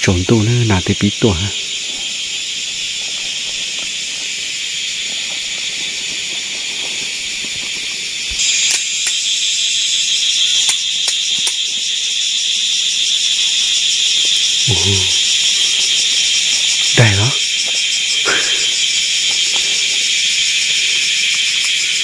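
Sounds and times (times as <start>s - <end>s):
higher-pitched insect: 0.0s - 22.0s
insects chirring: 0.0s - 22.0s.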